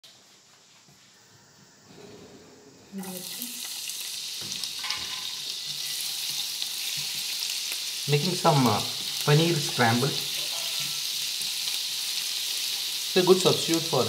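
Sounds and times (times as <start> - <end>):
food sizzling in hot oil: 3.0 - 14.0.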